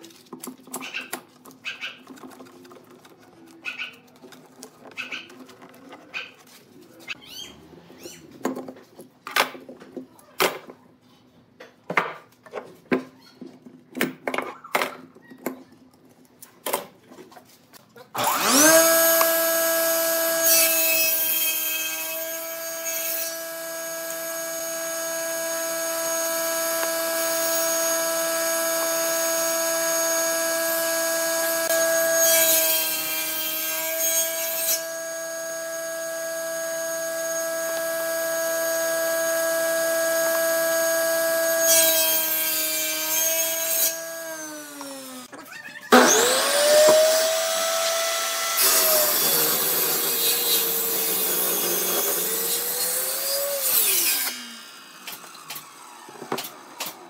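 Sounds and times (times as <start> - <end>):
table saw cutting wood: 18.2 - 45.3, 45.9 - 57.0.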